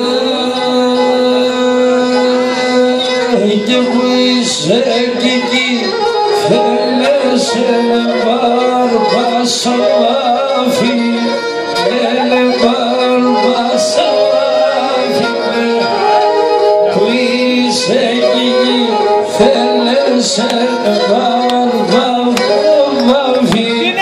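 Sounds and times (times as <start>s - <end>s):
man singing into a microphone: 0.0s - 24.0s
melodic accompaniment: 0.0s - 24.0s
percussion beat: 20.4s - 24.0s.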